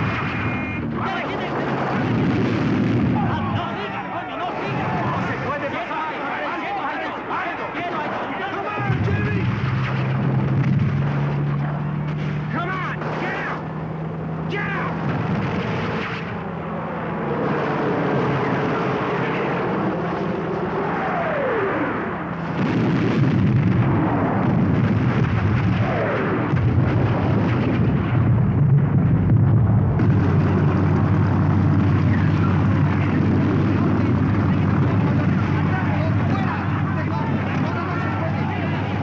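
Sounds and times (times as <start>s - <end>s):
explosions: 0.0s - 3.8s, 8.8s - 12.4s, 15.0s - 16.4s, 22.3s - 36.4s
jeep engine running: 28.3s - 39.0s.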